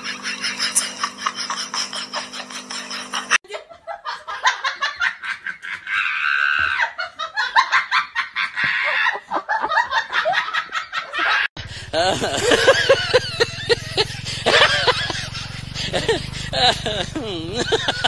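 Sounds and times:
motorbike engine hum: 0:00.0 - 0:03.4, 0:11.6 - 0:18.0
person laughing: 0:00.0 - 0:07.8, 0:08.4 - 0:18.0
people calling: 0:11.7 - 0:18.0.

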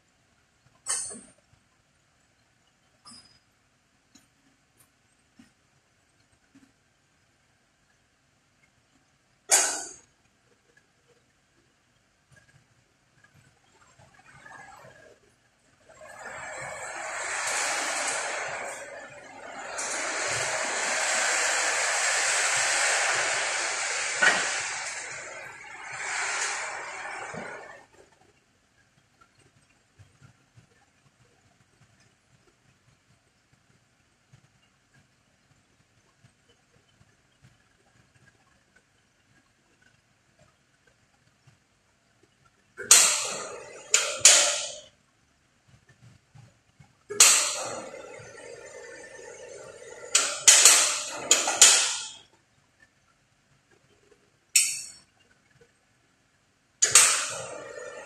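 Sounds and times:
loud rushing hiss of air: 0:16.1 - 0:27.8
metal striking metal: 0:42.8 - 0:44.9, 0:47.1 - 0:52.2, 0:54.6 - 0:55.0, 0:56.8 - 0:58.0.

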